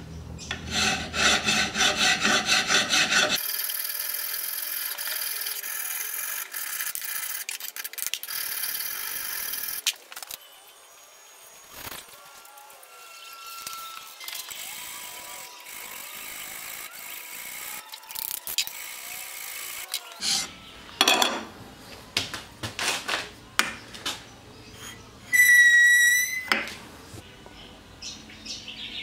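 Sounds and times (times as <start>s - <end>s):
file scraping steel: 0.4s - 3.7s, 20.2s - 20.6s, 24.6s - 26.8s
high-pitched metal squeal: 12.4s - 15.6s, 24.8s - 26.6s.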